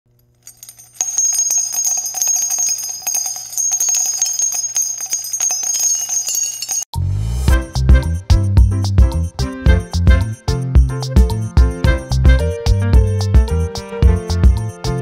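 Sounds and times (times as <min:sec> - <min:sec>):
jingling bell chimes: 0:00.4 - 0:06.9.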